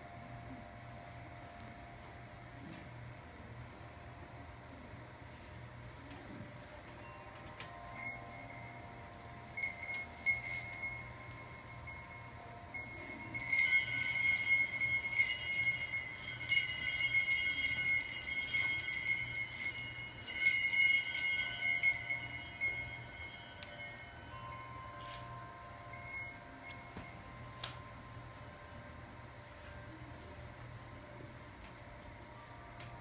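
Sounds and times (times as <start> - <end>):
jingling bell-like shimmer: 7.0 - 28.2
steady high tones: 7.0 - 29.9.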